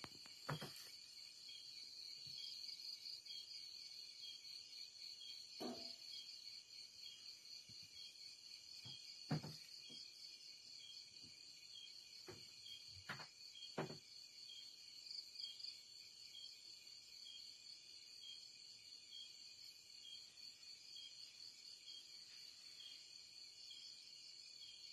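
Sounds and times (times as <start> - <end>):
crickets and insects chirping: 0.0 - 24.9.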